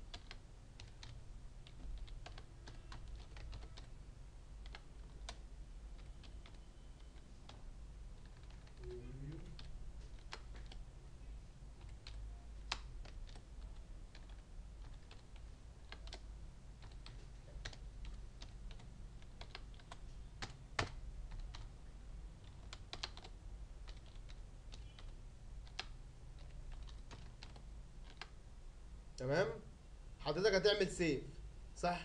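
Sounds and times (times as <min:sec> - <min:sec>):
faint low hum: 0:00.0 - 0:32.0
keyboard key clicks: 0:11.8 - 0:21.7.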